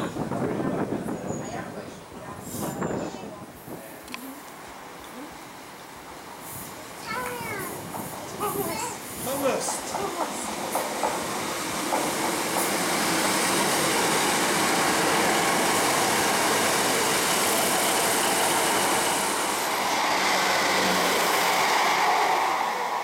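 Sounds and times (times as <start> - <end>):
train wheels rolling on rails: 0.0 - 3.8, 4.5 - 23.0
diesel train engine: 4.4 - 23.0.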